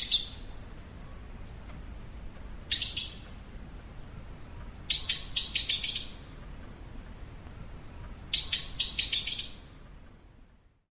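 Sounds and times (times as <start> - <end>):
bird calling: 0.0 - 0.5, 2.7 - 3.4, 4.9 - 6.3, 8.3 - 9.7.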